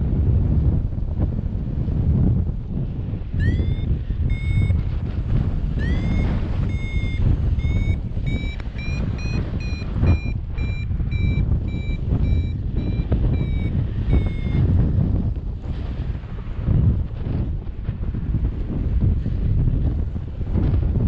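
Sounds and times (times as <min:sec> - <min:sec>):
wind rushing over microphone: 0:00.0 - 0:21.0
variometer beeping: 0:03.4 - 0:14.8.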